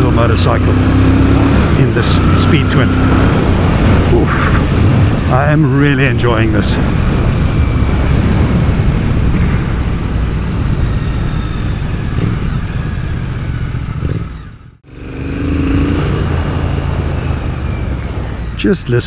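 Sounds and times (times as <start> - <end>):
road noise: 0.0 - 19.0
wind: 0.0 - 19.0
motorcycle engine running: 6.8 - 18.5.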